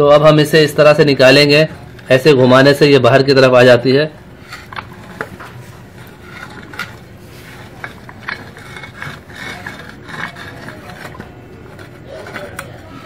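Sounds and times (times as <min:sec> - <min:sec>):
metal clicks and scraping: 0:04.4 - 0:13.0.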